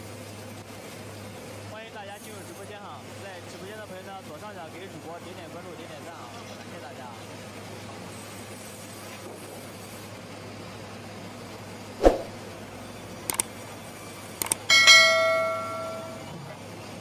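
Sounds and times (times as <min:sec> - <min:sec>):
short mouse clicks: 0:13.3 - 0:13.5, 0:14.4 - 0:14.6
bell chime: 0:14.7 - 0:16.4.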